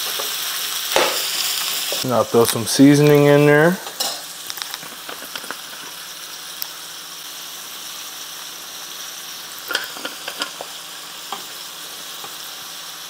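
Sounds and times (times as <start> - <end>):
meat sizzling in a pan: 0.0 - 13.0.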